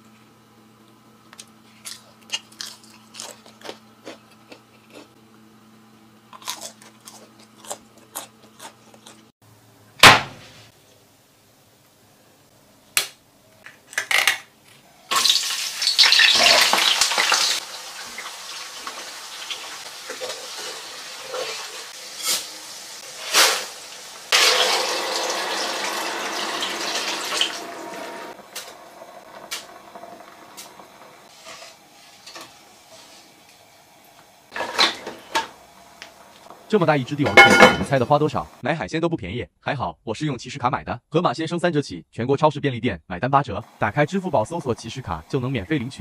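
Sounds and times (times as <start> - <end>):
hot oil sizzling: 15.0 - 38.6
spoon clinking against pot: 37.3 - 37.9.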